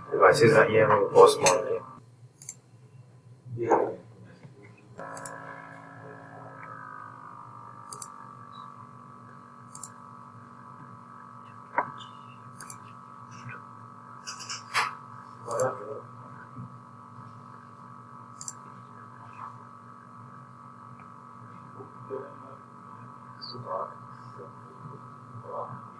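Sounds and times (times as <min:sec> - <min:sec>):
steady background hum: 0:00.0 - 0:25.9
computer mouse clicking: 0:02.4 - 0:02.6, 0:05.1 - 0:05.4, 0:07.9 - 0:08.1, 0:09.7 - 0:10.0, 0:12.6 - 0:12.8, 0:15.5 - 0:15.7, 0:18.4 - 0:18.6.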